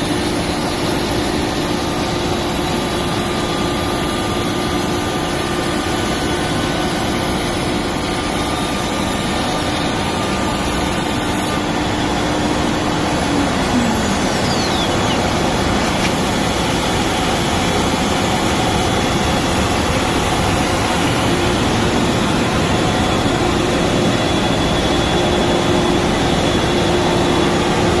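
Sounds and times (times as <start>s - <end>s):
router machine rushing noise: 0.0s - 23.3s
steady hum: 5.0s - 26.1s
faint whine falling in pitch: 12.1s - 16.2s.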